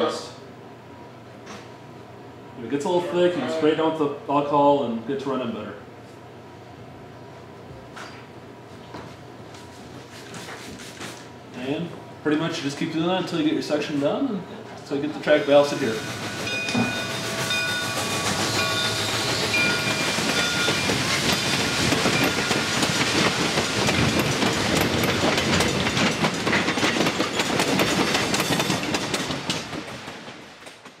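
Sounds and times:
train wheels clacking over rail joints: 15.8 - 31.0.

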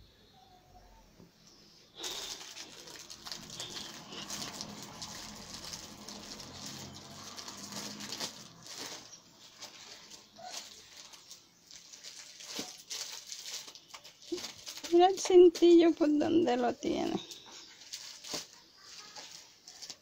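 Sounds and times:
crackly rustling: 1.4 - 20.0.

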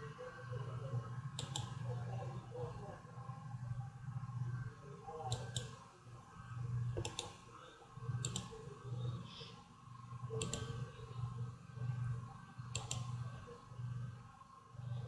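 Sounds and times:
low hum: 0.0 - 15.0
computer mouse clicking: 1.4 - 1.8, 5.2 - 5.8, 6.9 - 7.4, 8.2 - 8.7, 10.3 - 10.9, 12.7 - 13.3.

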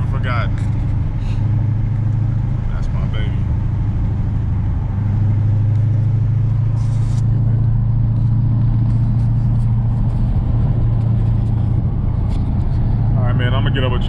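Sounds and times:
car engine cruising: 0.0 - 14.0.

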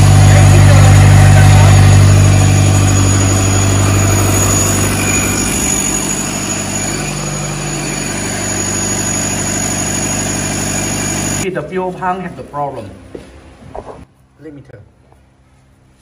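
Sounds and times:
diesel engine running: 0.0 - 11.4.

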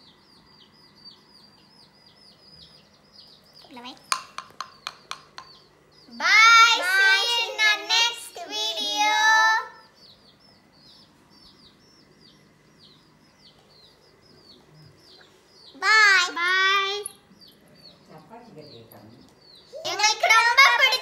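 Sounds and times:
bird chirping: 0.0 - 21.0
girls' sing-song voices: 6.2 - 9.9.

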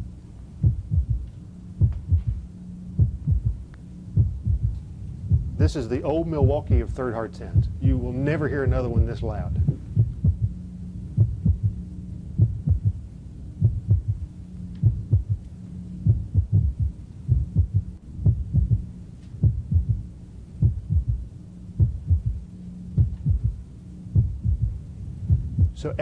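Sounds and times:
steady low hum: 0.0 - 26.0
heartbeat gallop thumps: 0.6 - 2.4, 3.0 - 3.6, 4.2 - 5.8, 6.4 - 6.9, 7.6 - 8.0, 8.7 - 10.6, 11.2 - 11.8, 12.4 - 13.0, 13.6 - 14.2, 14.8 - 15.4, 16.0 - 20.0, 20.6 - 21.2, 21.8 - 22.4, 23.0 - 25.8.

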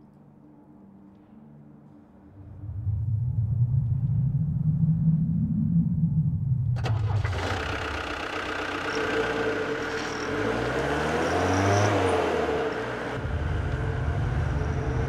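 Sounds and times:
van engine revving: 6.7 - 15.0.

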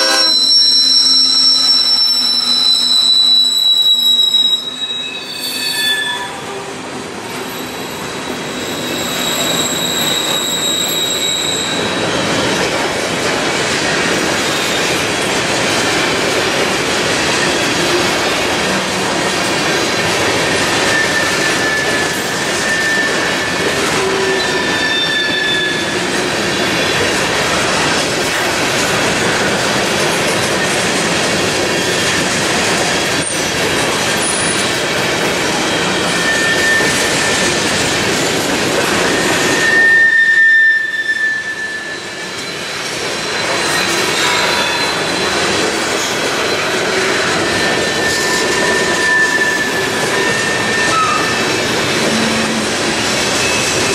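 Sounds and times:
high-pitched wheel squeals: 0.0 - 6.6, 7.5 - 12.2, 20.7 - 26.9, 35.7 - 37.6, 39.0 - 53.9
train wheels rumbling on rail: 0.0 - 53.9.

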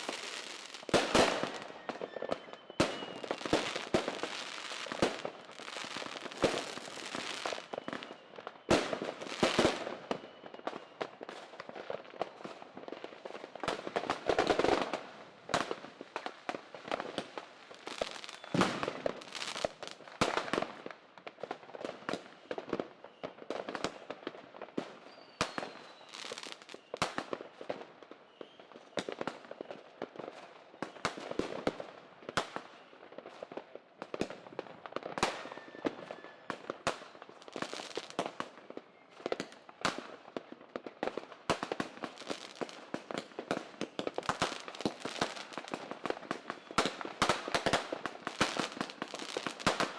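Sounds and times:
firework bangs: 0.0 - 7.8, 17.9 - 19.7
firecrackers crackling: 0.0 - 20.9, 24.8 - 27.9, 32.4 - 49.9
faint falling whistles: 1.6 - 3.4, 7.4 - 8.8, 18.2 - 18.9, 35.3 - 36.6.

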